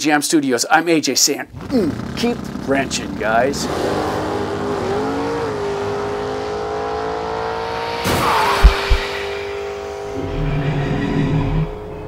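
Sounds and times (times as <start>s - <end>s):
sharp hit: 7.8s - 9.6s
heavy thumps: 8.5s - 9.1s.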